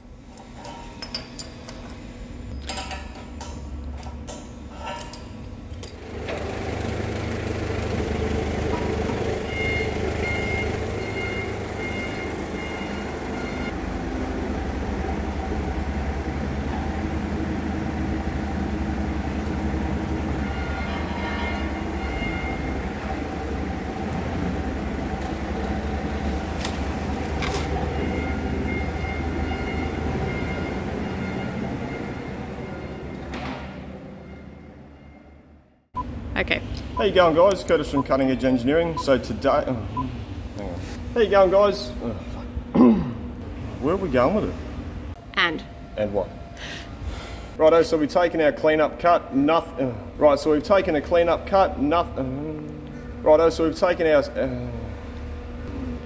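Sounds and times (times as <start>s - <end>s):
heavy machine droning: 5.9s - 40.5s, 51.2s - 56.0s.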